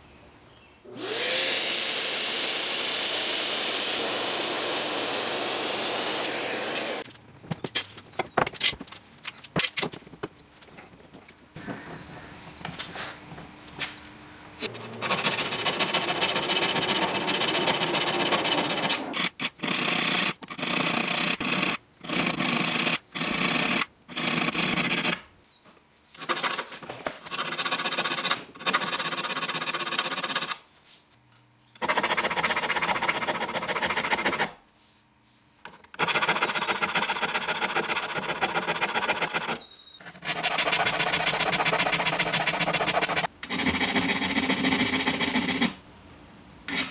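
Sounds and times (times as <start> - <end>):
file scraping saw teeth: 36.0 - 45.8.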